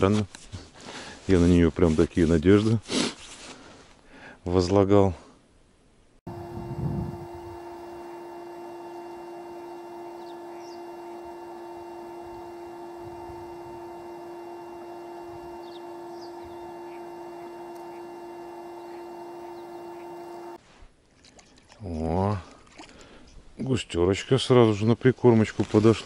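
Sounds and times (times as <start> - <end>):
steady low hum: 6.2 - 20.6
faint bird chirps: 10.2 - 10.9.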